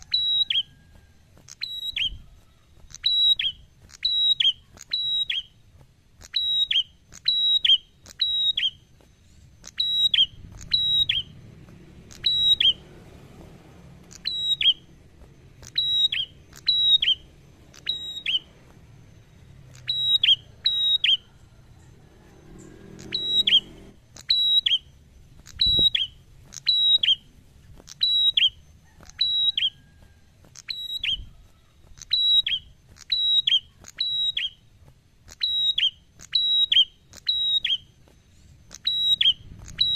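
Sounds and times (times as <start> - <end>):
bird whistling song: 0.0 - 39.9.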